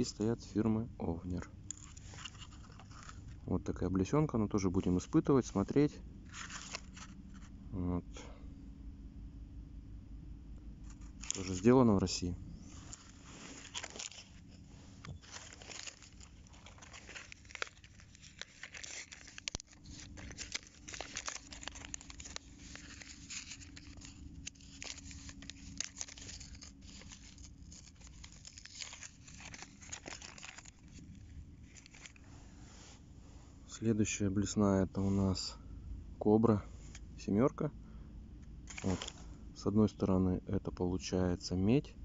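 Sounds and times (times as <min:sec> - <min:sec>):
plastic packaging crinkling: 0:01.4 - 0:03.5, 0:04.4 - 0:07.5, 0:10.9 - 0:11.8, 0:12.6 - 0:32.3, 0:38.7 - 0:39.3.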